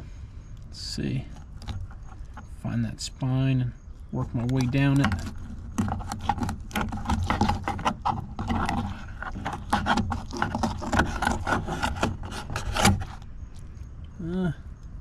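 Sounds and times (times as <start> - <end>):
knife scraping along bone: 4.5 - 13.2.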